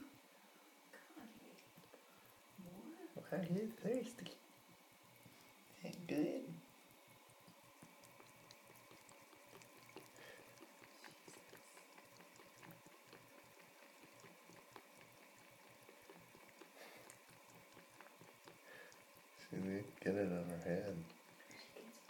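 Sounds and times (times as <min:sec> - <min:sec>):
cat lapping water: 0:06.7 - 0:22.0.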